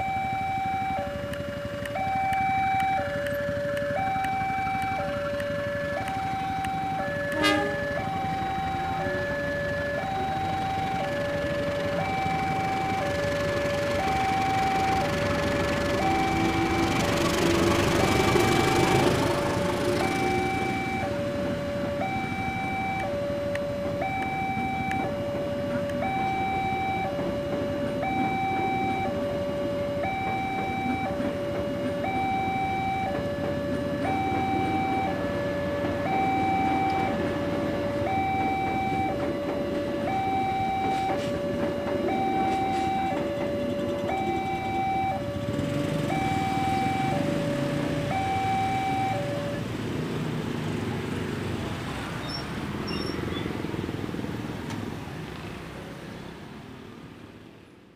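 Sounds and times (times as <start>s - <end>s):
motorcycle engines moving off: 0.0s - 57.6s
train rumbling past: 5.5s - 48.2s.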